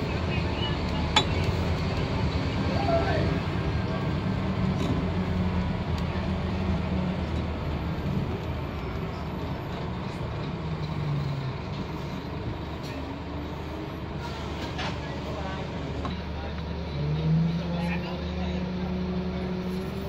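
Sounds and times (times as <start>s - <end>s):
bus diesel engine running: 0.0s - 20.0s.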